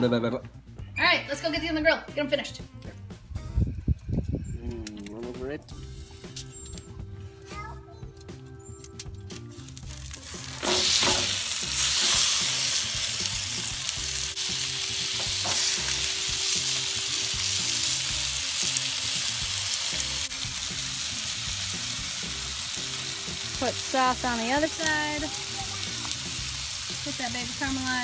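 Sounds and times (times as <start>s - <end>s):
ribs sizzling on a grill: 5.7s - 6.8s, 9.3s - 28.0s.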